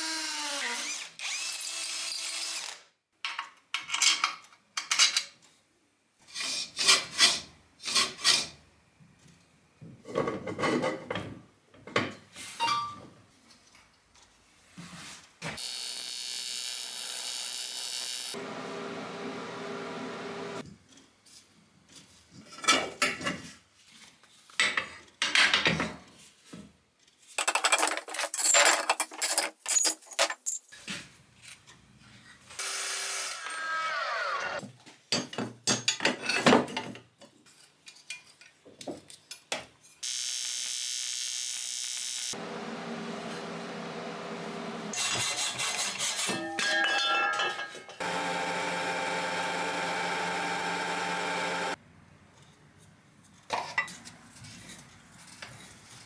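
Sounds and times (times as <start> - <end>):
power tool running: 15.6 - 20.6, 40.0 - 45.1, 48.0 - 51.8.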